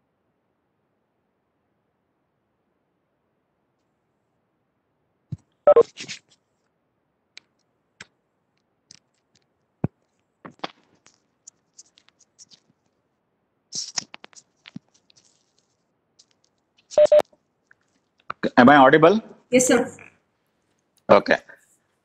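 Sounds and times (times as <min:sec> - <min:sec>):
microphone handling clicks and rustles: 0:08.9 - 0:13.0, 0:13.7 - 0:18.5.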